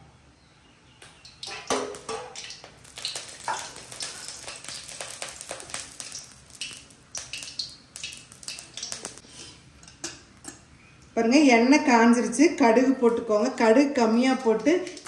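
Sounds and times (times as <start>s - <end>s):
oil crackling and popping: 1.0s - 11.1s, 14.4s - 15.0s.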